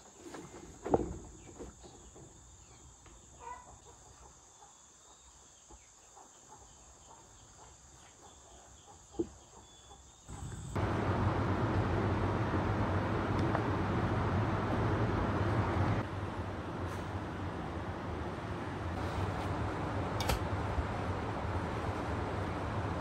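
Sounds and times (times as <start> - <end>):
loud steady noise with low hum: 10.3 - 23.0.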